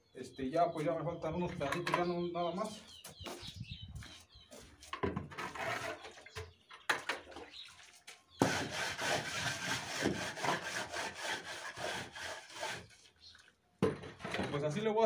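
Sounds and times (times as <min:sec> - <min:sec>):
hand float scraping concrete: 0:05.2 - 0:14.8.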